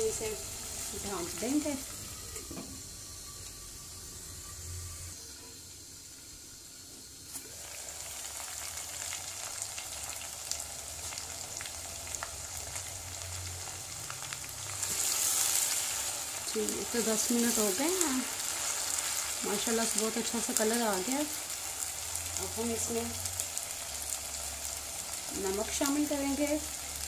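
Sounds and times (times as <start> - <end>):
chicken sizzling in hot oil: 0.0 - 27.0
spatula turning food in pot: 7.3 - 27.0.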